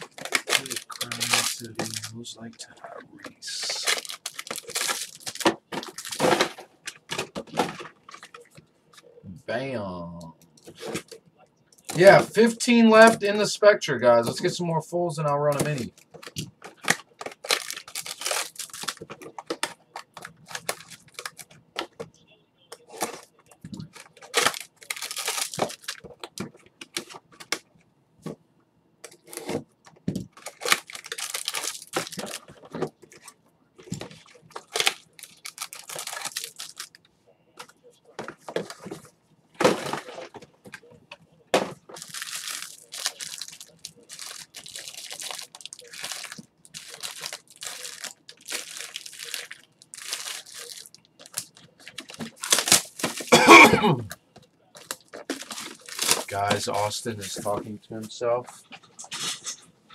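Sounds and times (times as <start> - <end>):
packaging crinkling and tearing: 0.0 - 2.2, 3.2 - 8.4, 15.5 - 22.0, 22.8 - 27.6, 29.0 - 37.0, 41.9 - 53.5, 54.8 - 57.3.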